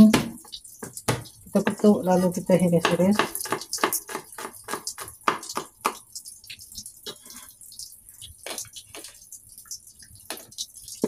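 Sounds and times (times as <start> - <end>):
knife chopping on wooden board: 2.8 - 6.0.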